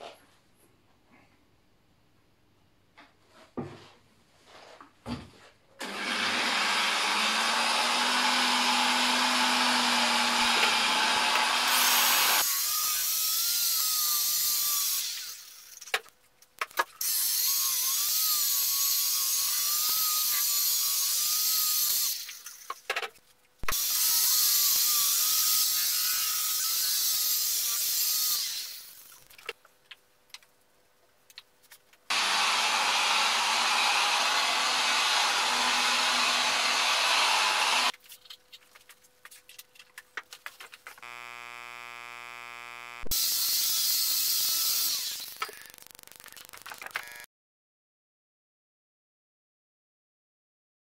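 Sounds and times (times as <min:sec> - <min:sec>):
electric polisher whirring: 0:05.8 - 0:15.4, 0:23.7 - 0:29.0, 0:32.1 - 0:37.9, 0:41.0 - 0:45.8, 0:46.8 - 0:47.3.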